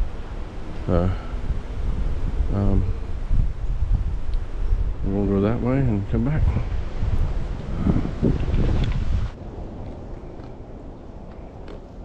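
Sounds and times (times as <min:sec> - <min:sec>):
wind rumble on microphone: 0:00.0 - 0:12.0
footsteps on dirt trail: 0:06.7 - 0:12.0.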